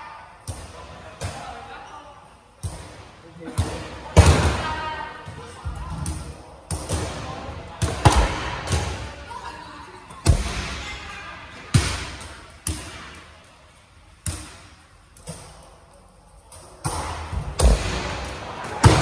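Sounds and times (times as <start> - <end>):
dodgeballs thudding in echoing hall: 0.0 - 19.0.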